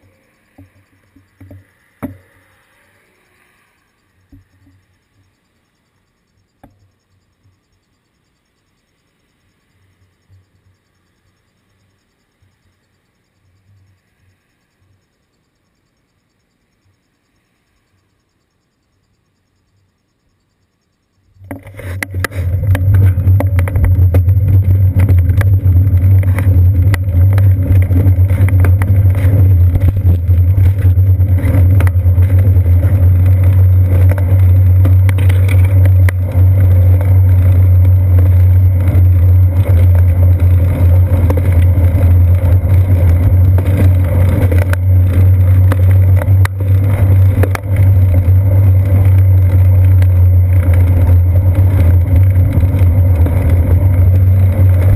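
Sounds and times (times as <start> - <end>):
bicycle road vibration: 0.0 - 3.1, 21.1 - 54.9
wind buffeting: 22.3 - 54.9.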